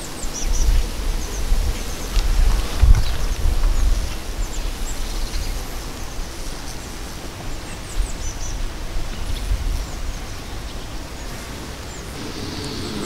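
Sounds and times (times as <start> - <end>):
wind rumbling on microphone: 0.0 - 13.0.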